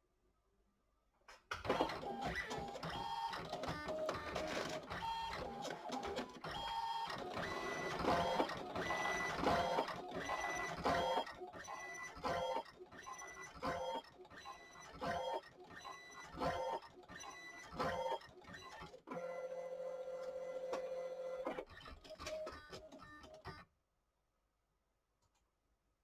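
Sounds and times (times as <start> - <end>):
printer motor running: 1.7 - 18.5.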